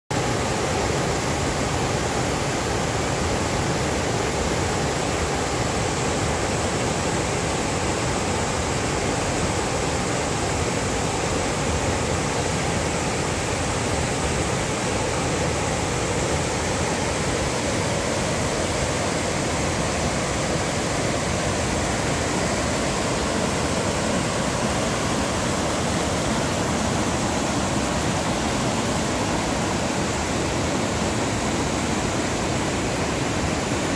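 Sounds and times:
creek rushing over boulders: 0.1s - 33.9s.

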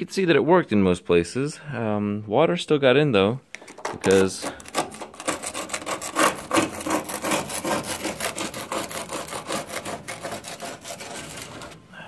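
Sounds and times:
hand tool scraping metal: 4.0s - 11.8s.

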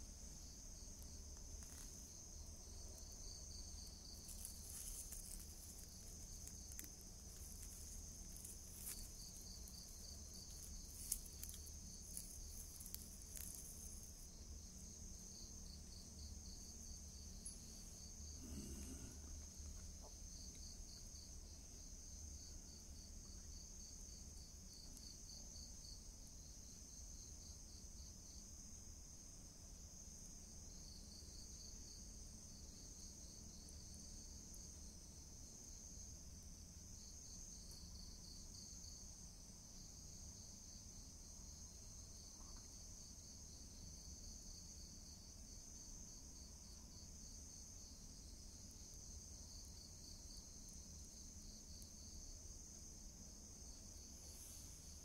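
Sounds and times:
crickets chirping: 0.0s - 55.0s
faint crackles and clicks: 1.0s - 2.2s, 3.0s - 14.3s.

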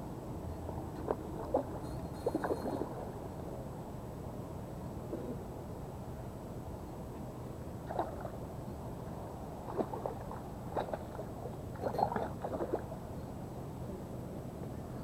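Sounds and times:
low background hum: 0.0s - 15.0s
fish splashing in water: 9.6s - 12.9s.

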